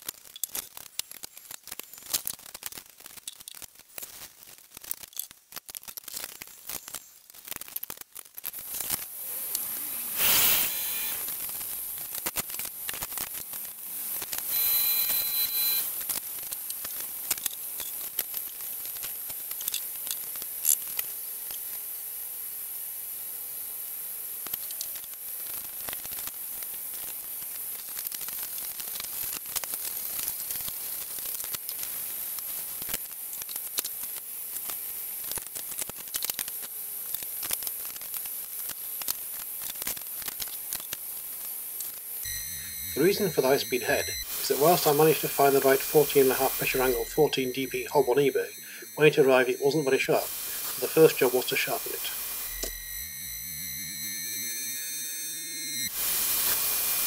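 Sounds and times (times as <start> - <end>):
high-pitched hiss: 8.5 - 57.0
short high tone: 42.3 - 55.9.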